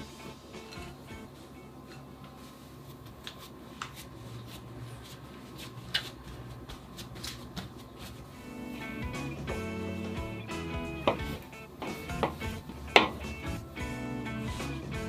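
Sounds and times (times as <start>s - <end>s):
soft rustling: 1.3s - 8.8s.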